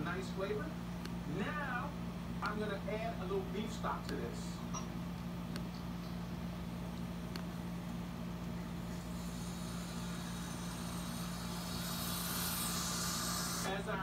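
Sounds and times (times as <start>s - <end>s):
low hum: 4.6s - 14.0s.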